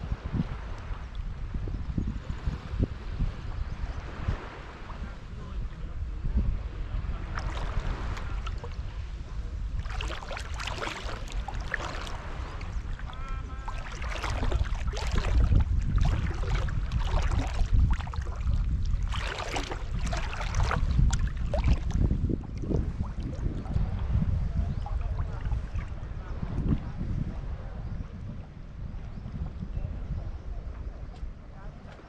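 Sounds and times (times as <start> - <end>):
low rumble of water on microphone: 0.0 - 32.0
seawater sloshing and splashing: 7.1 - 26.5.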